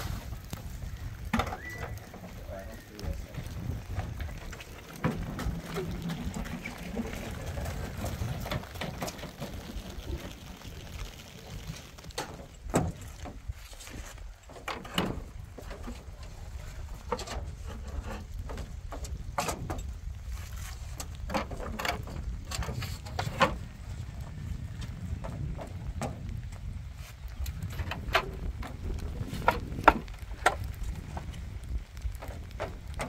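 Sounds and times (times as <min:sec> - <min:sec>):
wind rumble on microphone: 0:00.0 - 0:33.0.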